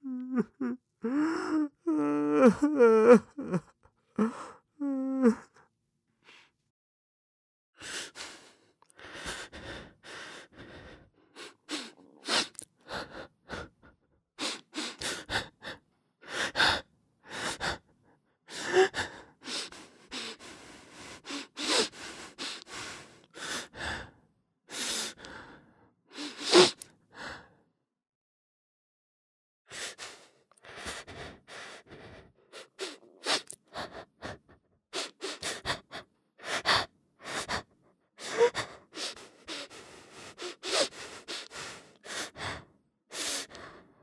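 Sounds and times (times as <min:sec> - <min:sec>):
person sobbing: 0:00.0 - 0:05.6.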